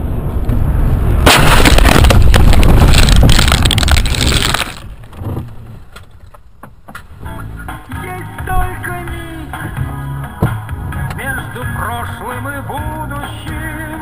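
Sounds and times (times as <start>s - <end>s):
low rumble: 0.0s - 5.4s
road and engine noise: 0.0s - 14.0s
loud car crash: 0.9s - 5.0s.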